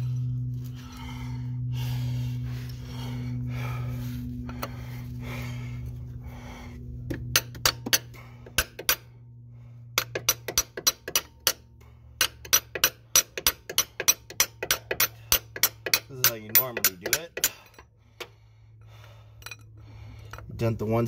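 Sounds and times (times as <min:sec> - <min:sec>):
hammer striking steel punch: 0:07.3 - 0:09.1, 0:10.0 - 0:11.6, 0:12.2 - 0:17.6.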